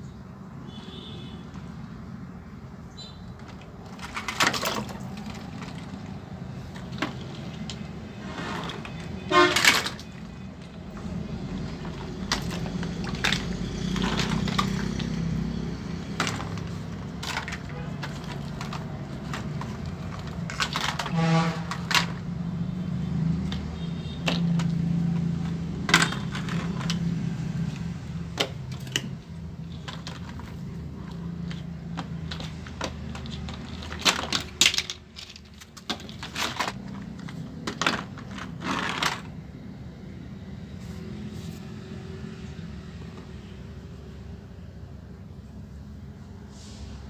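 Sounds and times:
plastic toys clattering: 0:03.3 - 0:39.6.

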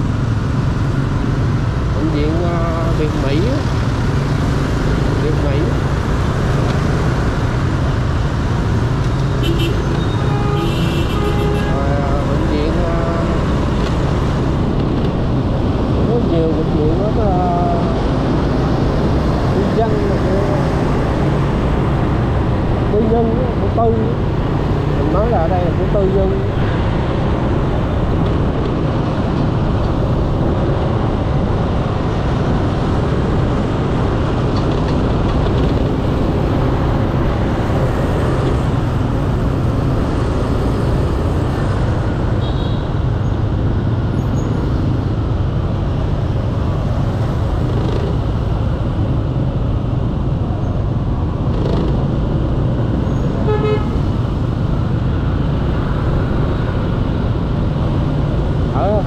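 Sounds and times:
road and wind noise: 0:00.0 - 0:59.0
vehicle horn honking: 0:09.4 - 0:11.7, 0:53.4 - 0:54.0.

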